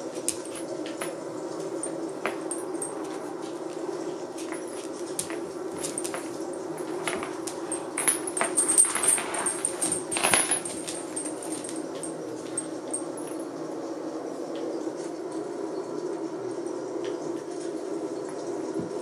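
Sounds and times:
dogs scuffling on wooden floor: 0.1s - 13.3s
chain collars jingling: 0.3s - 3.6s, 4.4s - 13.5s.

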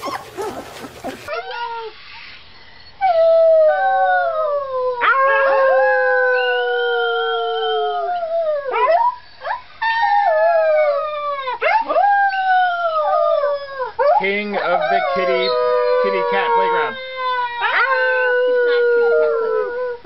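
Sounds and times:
puppy howling: 0.0s - 1.9s, 3.2s - 20.0s
puppy yelping: 0.0s - 1.9s.

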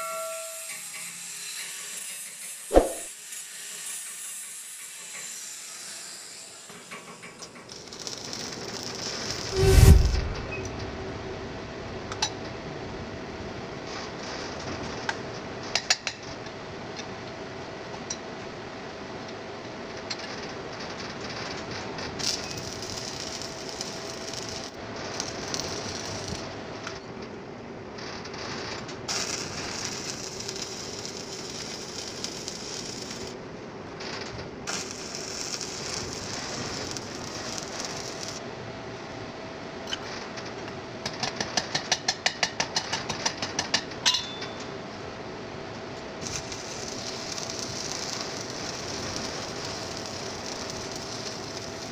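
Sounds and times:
welding arc crackling: 6.6s - 10.4s, 22.0s - 26.6s, 29.1s - 33.4s, 34.6s - 38.4s, 46.2s - 51.9s
low hum: 9.5s - 12.2s.

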